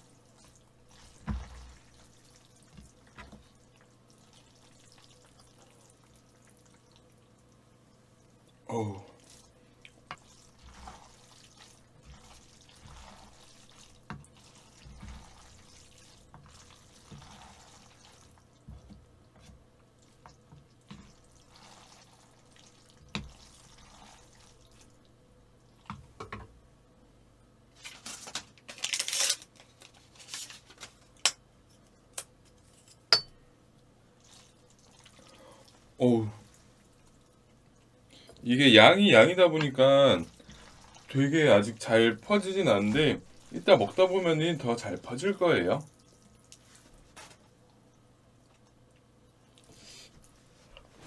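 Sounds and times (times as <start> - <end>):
sloshing: 0.0 - 7.1, 9.1 - 25.0, 38.8 - 47.2
noodles squelching: 0.2 - 7.2, 8.4 - 18.9, 20.0 - 25.0, 38.8 - 47.2.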